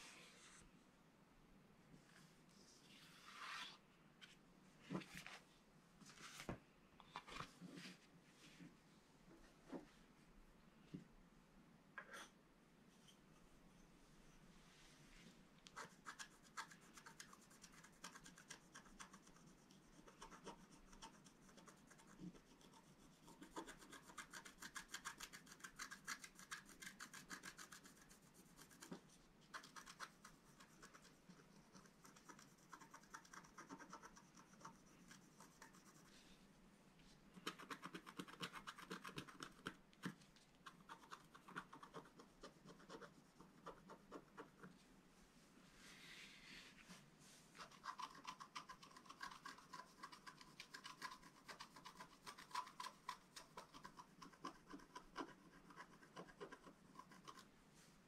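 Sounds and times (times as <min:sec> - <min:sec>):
stylus scratching coated paper: 0:15.7 - 0:36.3, 0:37.4 - 0:44.7, 0:47.5 - 0:57.5.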